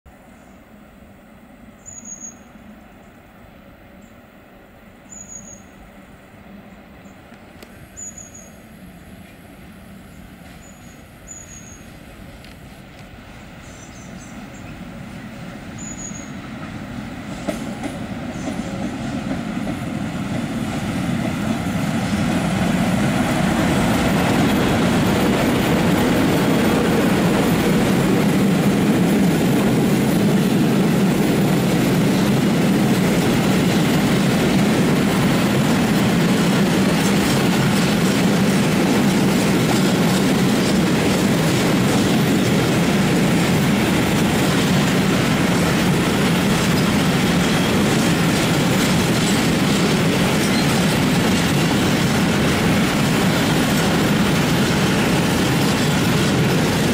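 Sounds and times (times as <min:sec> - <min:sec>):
freight train wheels rumbling on rails: 0:01.5 - 0:56.9
bird chirping: 0:01.8 - 0:03.2, 0:05.1 - 0:05.8, 0:07.9 - 0:09.1, 0:10.1 - 0:12.0, 0:13.4 - 0:14.8, 0:15.8 - 0:16.4.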